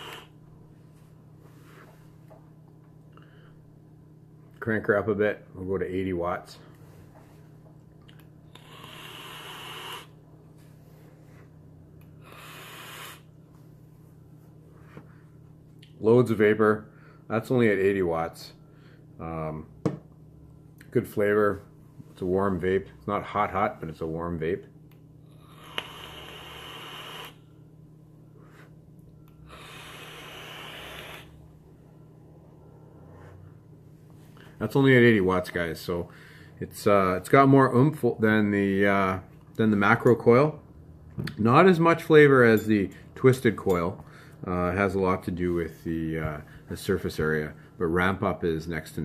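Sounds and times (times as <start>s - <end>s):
airy hiss of vape inhale: 0.0s - 0.3s, 8.6s - 10.2s, 12.2s - 13.3s, 25.4s - 27.4s, 29.4s - 31.3s.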